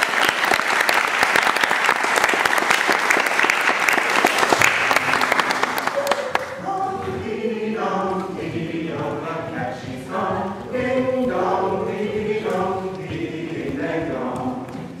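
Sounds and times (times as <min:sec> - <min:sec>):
group of voices singing: 0:06.6 - 0:15.0.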